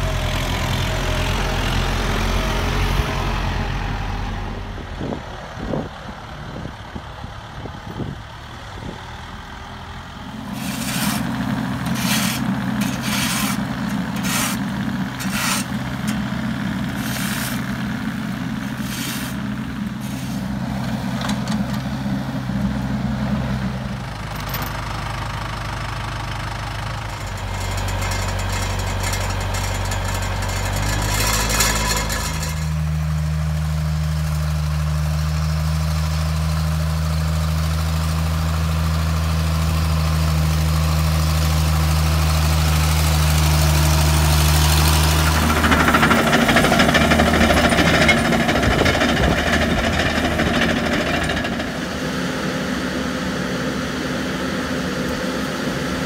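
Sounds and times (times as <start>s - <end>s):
crawler dozer engine: 0.0s - 56.0s
excavator diesel engine: 0.0s - 56.0s
grader engine running steadily: 0.0s - 56.0s.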